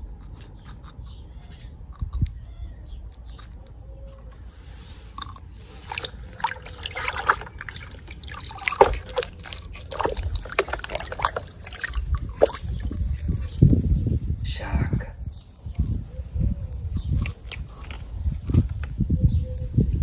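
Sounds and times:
water sloshing and splashing: 4.8 - 14.0, 17.1 - 18.8.

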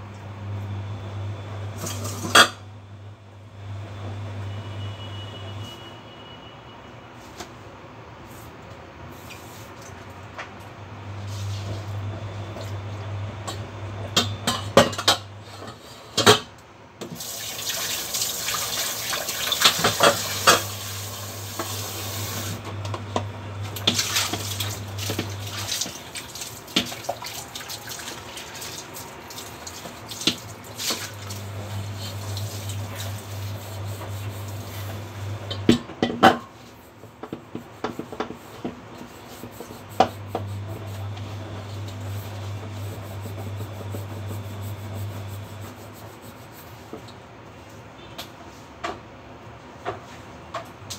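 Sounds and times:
tap running into a saucepan: 19.5 - 20.8.

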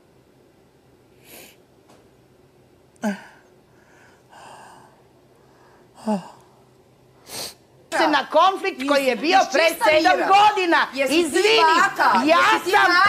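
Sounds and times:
man sniffing: 1.2 - 1.6, 7.2 - 7.6.

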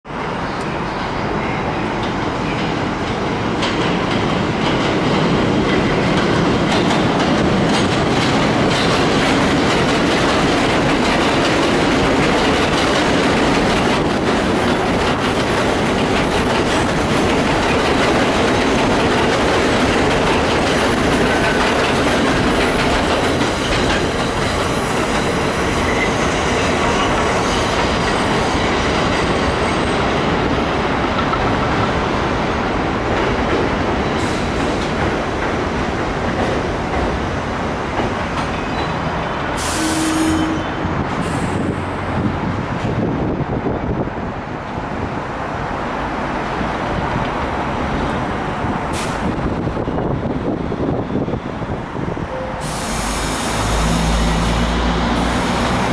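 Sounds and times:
train wheels clattering over rail joints: 2.0 - 32.2, 33.0 - 39.0.

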